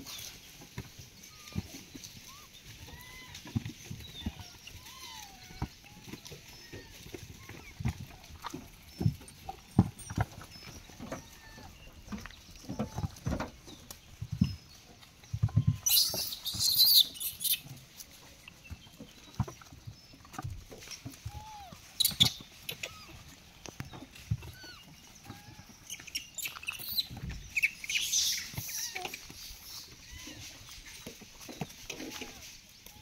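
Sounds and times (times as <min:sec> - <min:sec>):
rustling: 0:00.0 - 0:33.0
monkey chirping calls: 0:15.6 - 0:17.7, 0:24.5 - 0:30.5.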